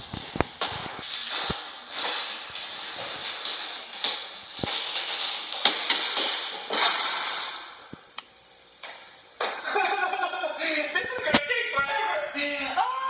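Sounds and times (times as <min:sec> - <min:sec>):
plastic bags rustling: 0:00.0 - 0:08.0.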